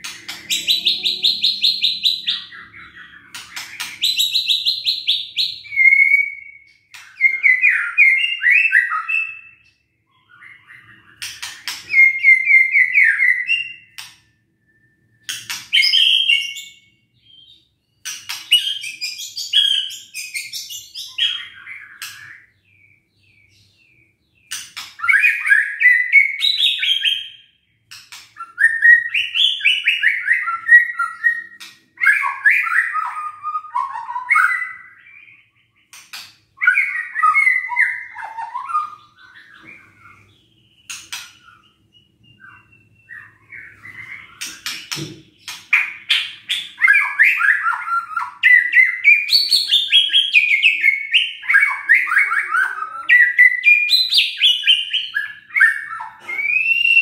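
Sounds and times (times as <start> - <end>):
bird singing whistled phrases: 0.1 - 11.2, 11.8 - 14.0, 28.4 - 35.6, 36.6 - 45.1, 45.8 - 57.0.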